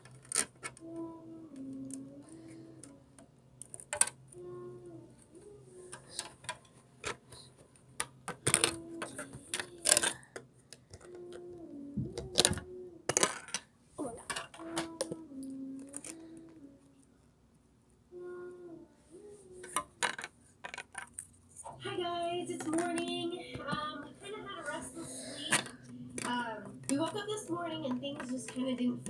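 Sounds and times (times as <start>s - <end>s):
plastic bricks clicking together: 3.6s - 4.2s, 8.0s - 11.4s, 12.1s - 13.7s, 19.6s - 21.3s.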